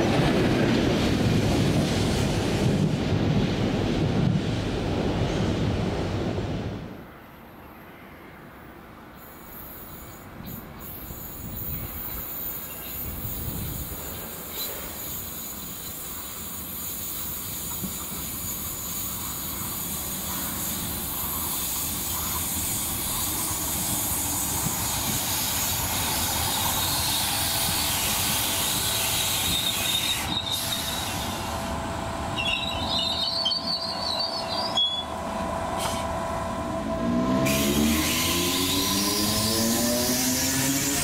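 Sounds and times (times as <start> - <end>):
train wheel and track noise: 0.0 - 41.0
high-pitched wheel squeal: 28.7 - 31.4, 32.4 - 35.2, 37.4 - 40.2.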